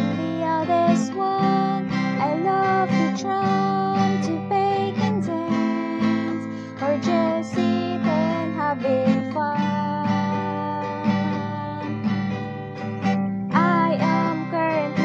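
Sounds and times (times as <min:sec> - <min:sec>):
woman singing: 0:00.0 - 0:12.7, 0:13.5 - 0:15.0
strummed acoustic guitar: 0:00.0 - 0:15.0.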